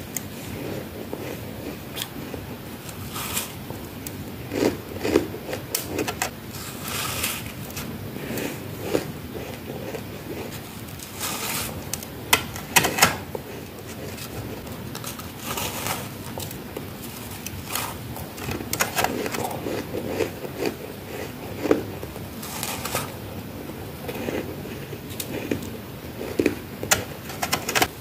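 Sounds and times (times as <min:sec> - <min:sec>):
chewing crunchy ice: 0:00.4 - 0:11.8, 0:15.0 - 0:23.2, 0:24.1 - 0:26.7.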